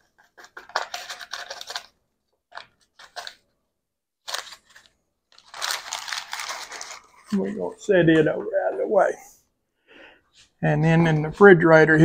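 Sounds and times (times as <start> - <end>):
paper packet crinkling: 0.0 - 3.5, 4.2 - 7.7.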